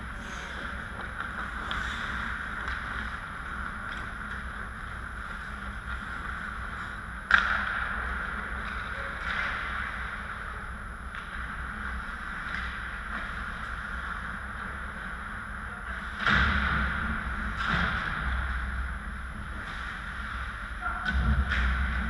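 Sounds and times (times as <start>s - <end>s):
low hum: 0.0s - 22.0s
skates on ice: 0.1s - 10.5s.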